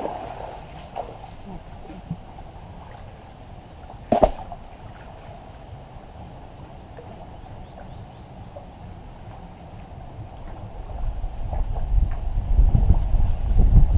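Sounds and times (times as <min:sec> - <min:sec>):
water sloshing from wading: 0:00.0 - 0:12.4
sharp knock: 0:04.1 - 0:04.5.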